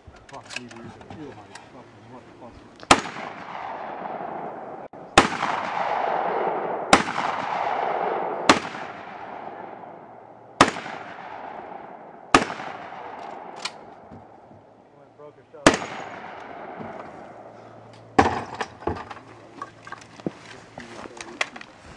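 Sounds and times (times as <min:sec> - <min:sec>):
loud gunshots with echo: 0:02.9 - 0:14.4, 0:15.6 - 0:17.6.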